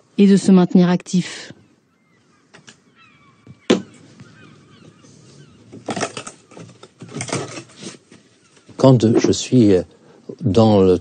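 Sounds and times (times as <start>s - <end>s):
sharp knock on wood: 3.5s - 3.9s
wooden boards clattering and scraping: 5.6s - 9.4s.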